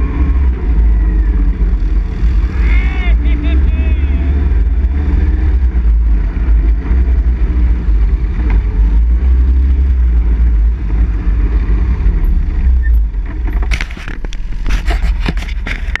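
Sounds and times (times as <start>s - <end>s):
atv engine rumbling: 0.0s - 16.0s
sharp knocks and clatters: 12.9s - 16.0s.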